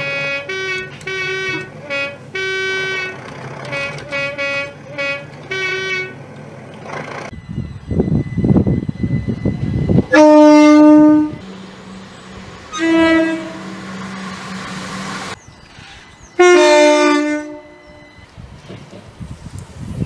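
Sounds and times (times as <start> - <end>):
train horn blasts: 0.0 - 6.2, 9.9 - 15.4, 16.4 - 18.2
diesel engine hum: 0.0 - 20.0.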